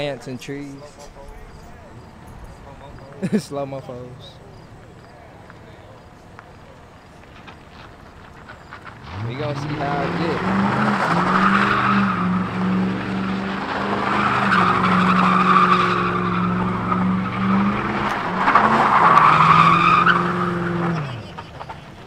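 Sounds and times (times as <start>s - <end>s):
tyres squealing on asphalt: 0.0s - 22.0s
car engine revving high: 8.9s - 21.4s.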